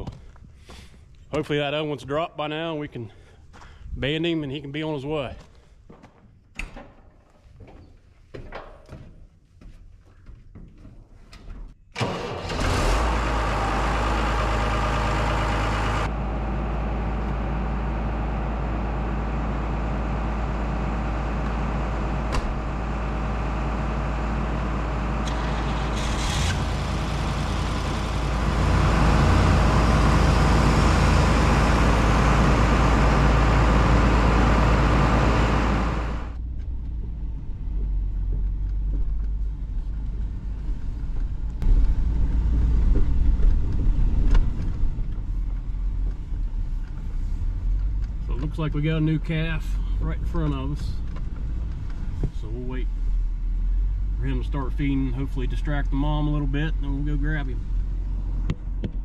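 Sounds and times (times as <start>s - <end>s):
pickup engine rumble from cab: 12.0s - 59.0s
tractor engine deep rumble: 12.0s - 59.0s.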